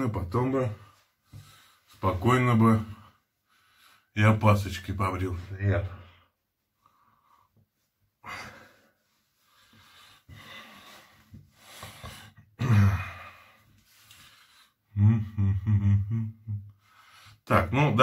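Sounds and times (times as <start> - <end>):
man breathing heavily: 1.0 - 2.0, 3.1 - 4.1, 6.6 - 15.0, 16.7 - 17.5
man sighing: 12.6 - 13.6.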